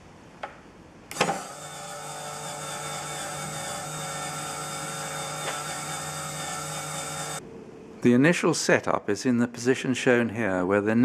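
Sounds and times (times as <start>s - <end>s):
small motor whirring whine: 1.1s - 7.4s.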